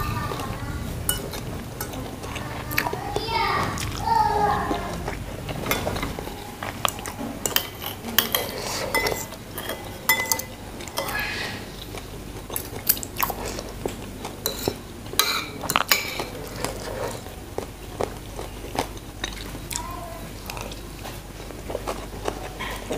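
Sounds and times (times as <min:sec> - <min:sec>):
chewing: 0:00.0 - 0:22.9
cutlery clinking on ceramic plate: 0:05.6 - 0:11.1.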